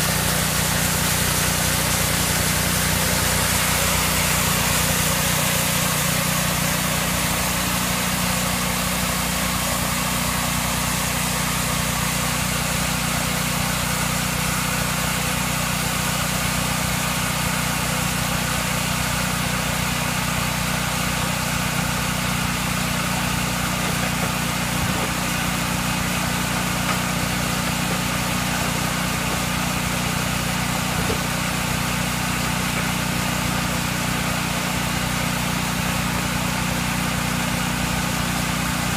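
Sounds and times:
band sawmill droning: 0:00.0 - 0:38.9.

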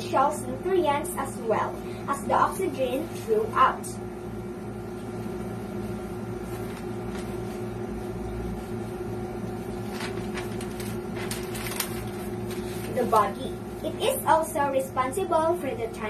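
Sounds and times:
low mechanical room hum: 0:00.0 - 0:16.0
paper rustling: 0:06.4 - 0:07.7, 0:09.8 - 0:13.4.

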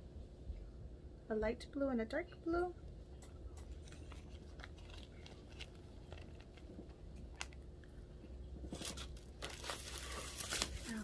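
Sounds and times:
packaging rustling and crinkling: 0:03.7 - 0:07.9, 0:08.6 - 0:11.0.

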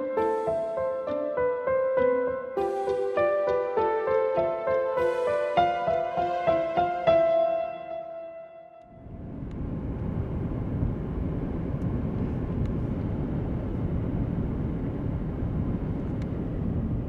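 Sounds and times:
low rumble of outdoor ambience: 0:08.9 - 0:17.0.

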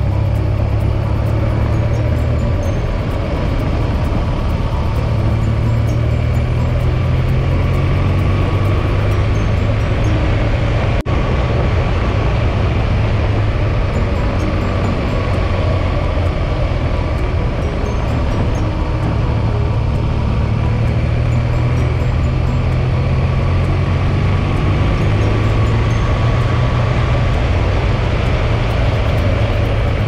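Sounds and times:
motorcycle engine drone: 0:00.0 - 0:30.0
wind noise: 0:00.0 - 0:30.0.

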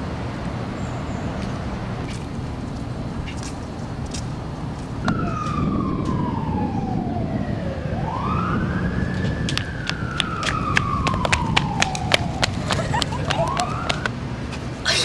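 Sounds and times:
siren wailing: 0:05.0 - 0:14.1.

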